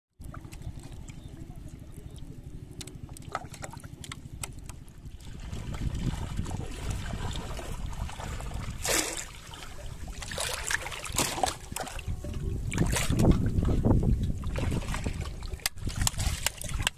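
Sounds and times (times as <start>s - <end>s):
drips and clicks: 0.2s - 4.8s
steady low rumble: 0.2s - 16.8s
water trickling and splashing: 0.2s - 16.9s.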